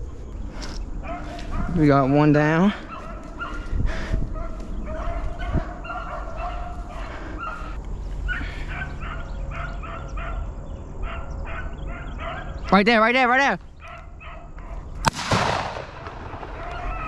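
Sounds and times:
hounds baying: 0.9s - 12.8s, 13.7s - 15.0s.

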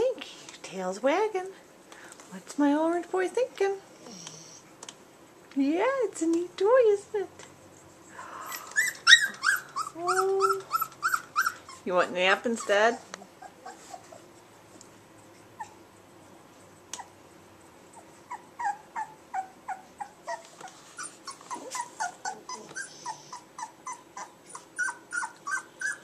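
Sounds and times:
puppy whimpering: 8.5s - 11.9s, 12.5s - 14.3s, 15.6s - 15.9s, 17.9s - 26.0s.

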